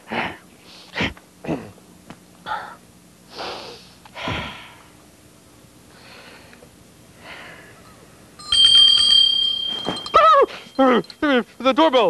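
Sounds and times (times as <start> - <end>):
bell ringing: 8.4 - 11.2.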